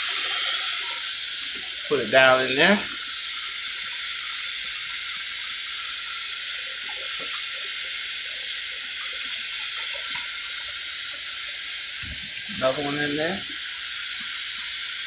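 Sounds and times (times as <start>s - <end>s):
tap running into metal sink: 12.0s - 12.6s.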